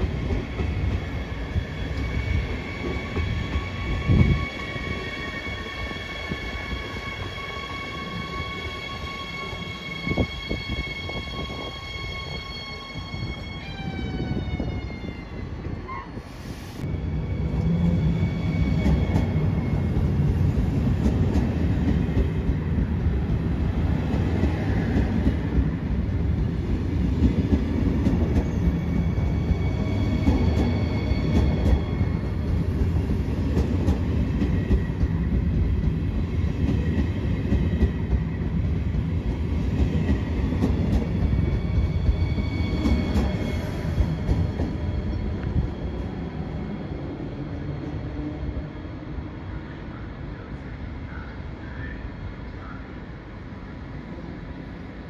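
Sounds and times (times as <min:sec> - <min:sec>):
train wheels rumbling on rail: 0:00.0 - 0:52.7
faint high wheel squeal: 0:28.4 - 0:32.3, 0:41.1 - 0:44.1.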